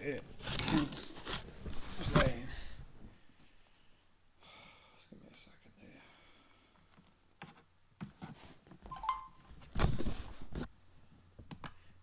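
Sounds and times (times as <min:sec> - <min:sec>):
brief electronic tone: 0:08.9 - 0:09.4.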